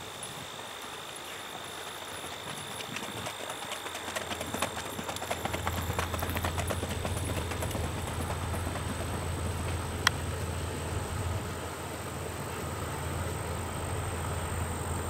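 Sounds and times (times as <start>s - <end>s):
horse hoofbeats on dirt: 0.1s - 11.6s.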